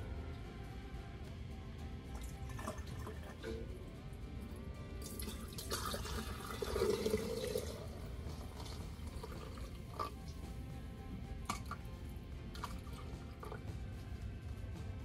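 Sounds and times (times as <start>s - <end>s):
liquid pouring and splashing: 2.2s - 3.7s, 5.0s - 10.2s, 12.5s - 13.6s.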